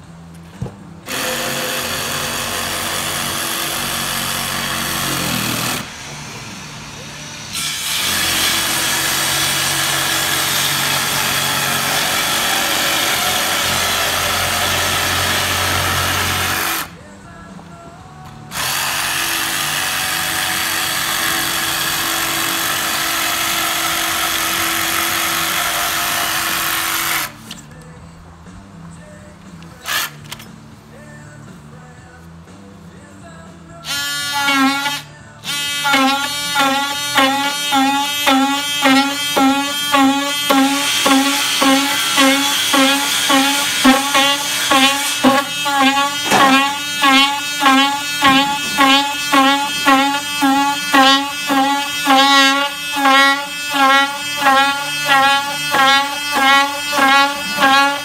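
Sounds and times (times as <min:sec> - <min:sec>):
jigsaw cutting foam: 0:01.1 - 0:06.0, 0:07.5 - 0:16.9, 0:18.6 - 0:27.3, 0:33.9 - 0:58.0.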